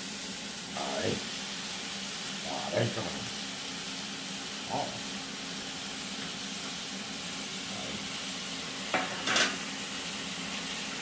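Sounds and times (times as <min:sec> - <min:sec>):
vegetables and meat sizzling in oil: 0:00.0 - 0:11.0
utensils scraping against pot: 0:09.0 - 0:09.6.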